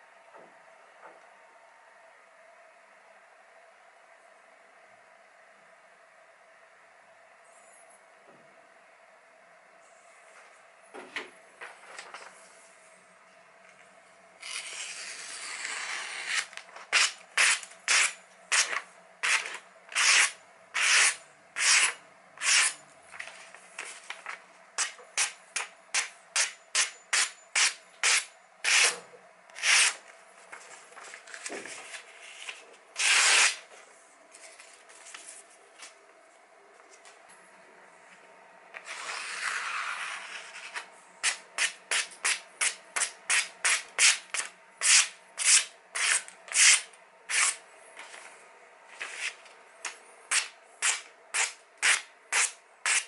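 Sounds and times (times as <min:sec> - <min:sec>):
knife cutting paper: 0:14.4 - 0:29.0, 0:29.6 - 0:30.0, 0:31.3 - 0:33.7, 0:38.8 - 0:47.6, 0:49.0 - 0:53.0
paper rustling: 0:23.1 - 0:24.4, 0:30.4 - 0:33.5, 0:34.3 - 0:36.0.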